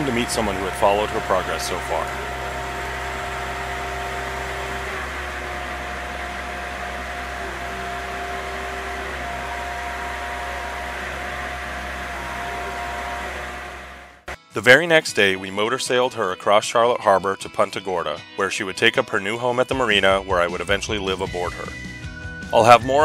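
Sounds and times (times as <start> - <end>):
engine hum: 0.0 - 14.4
machine whine: 0.0 - 14.4.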